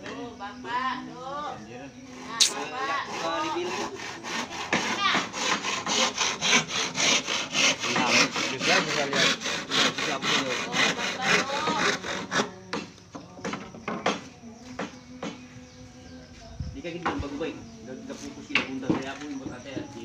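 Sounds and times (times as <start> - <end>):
handsaw cutting wooden board: 2.4 - 12.8.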